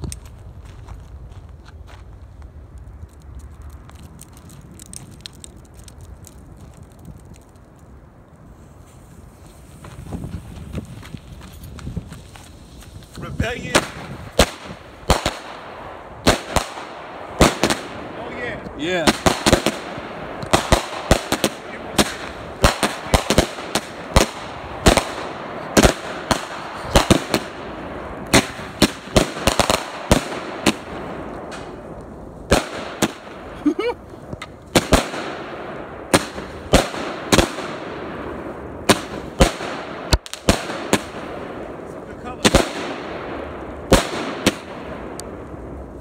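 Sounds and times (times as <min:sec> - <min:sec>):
firework hiss: 0:08.4 - 0:11.4
fireworks bangs: 0:11.9 - 0:46.0.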